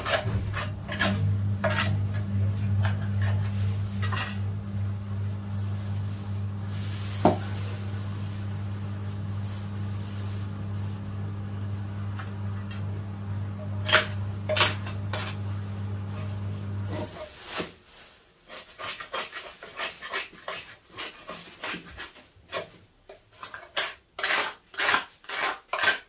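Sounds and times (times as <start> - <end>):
tool scraping metal strainer: 0.0 - 6.1, 13.6 - 17.4, 18.5 - 26.0
steady low hum: 0.0 - 17.0
plastic bag rustling: 0.0 - 18.5.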